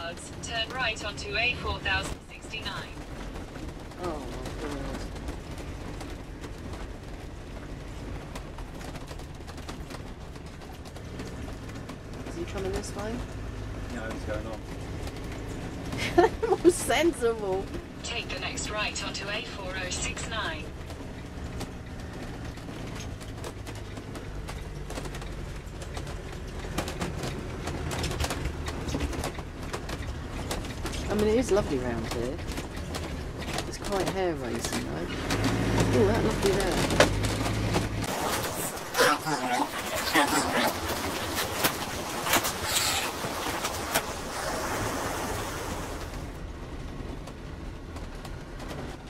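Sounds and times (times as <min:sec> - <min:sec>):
engine rumble: 0:00.0 - 0:49.0
tyre noise on a wet road: 0:00.0 - 0:49.0
small ticks and rattles: 0:03.0 - 0:16.0, 0:20.7 - 0:38.0.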